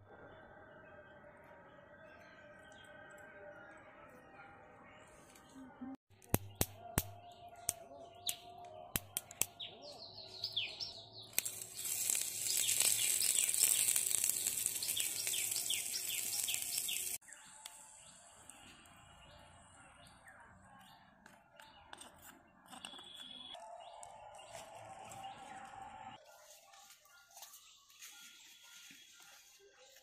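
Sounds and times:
birds chirping: 7.2s - 25.9s
chilies sizzling in hot oil: 11.3s - 18.0s.

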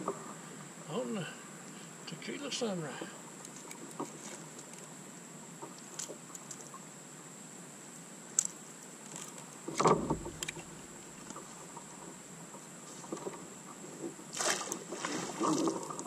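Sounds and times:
small clicks and rattles: 5.6s - 6.8s
thump and rustle: 9.1s - 12.2s, 12.8s - 16.0s.

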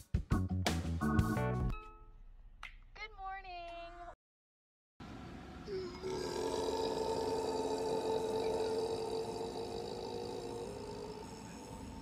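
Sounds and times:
dog howling low: 5.7s - 12.0s.

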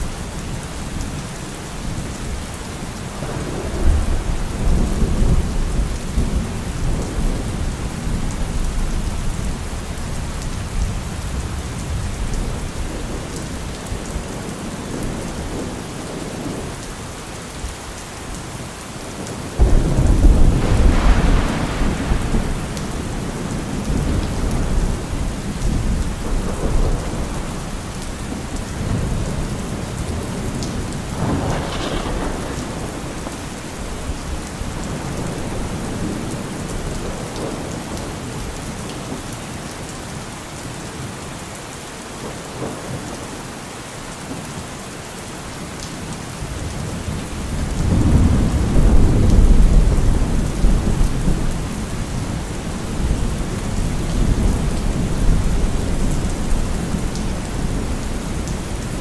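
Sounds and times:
heavy rain falling: 0.0s - 59.0s
thunder rumbling: 19.2s - 38.5s, 46.6s - 59.0s.

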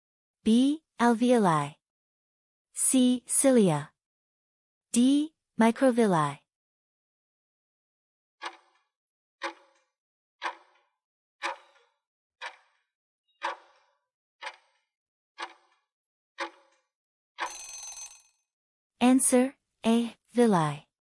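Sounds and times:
clock ticks: 8.4s - 8.7s, 9.4s - 9.7s, 10.4s - 10.8s, 11.4s - 12.8s, 13.4s - 13.8s, 14.4s - 14.8s, 15.4s - 15.8s, 16.4s - 16.6s.

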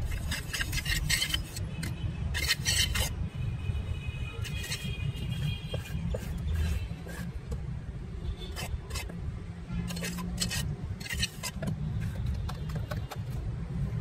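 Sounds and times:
trowel scraping wet concrete: 0.0s - 3.2s, 4.4s - 5.0s, 5.6s - 7.4s, 8.5s - 9.2s, 9.9s - 12.9s.

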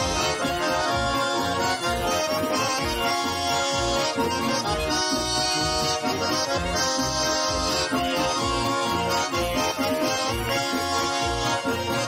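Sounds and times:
accordions playing a folk tune: 0.0s - 12.0s.

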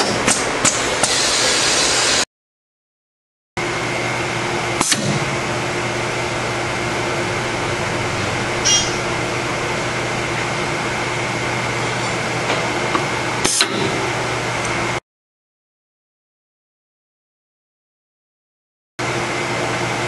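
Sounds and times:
machine humming: 3.6s - 15.0s.

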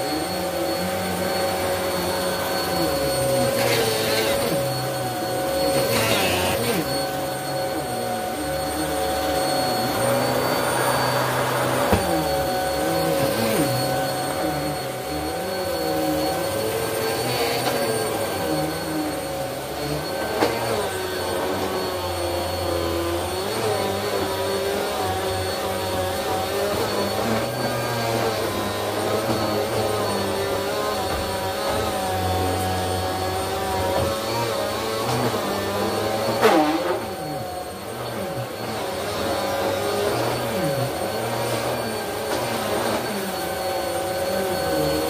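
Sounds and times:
vacuum cleaner running on carpet: 0.0s - 45.0s.

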